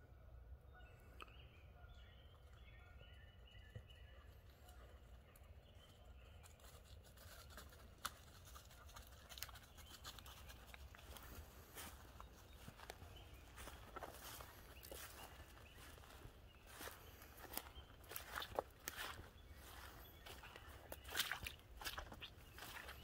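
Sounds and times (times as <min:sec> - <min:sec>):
distant bird calls: 0:00.1 - 0:06.7, 0:09.4 - 0:23.0
footsteps crunching dry leaves: 0:06.6 - 0:23.0.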